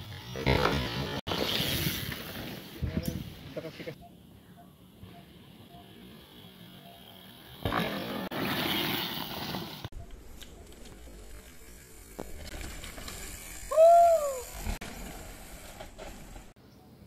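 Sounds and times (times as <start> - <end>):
bike tyres skidding on dirt: 0.0 - 2.8, 6.2 - 10.0, 10.9 - 16.6
person whooping: 13.7 - 14.6.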